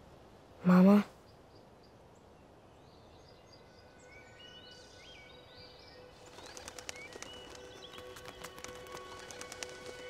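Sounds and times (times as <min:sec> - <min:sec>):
small birds chirping: 0:00.7 - 0:10.0
bird wings flapping: 0:06.1 - 0:10.0.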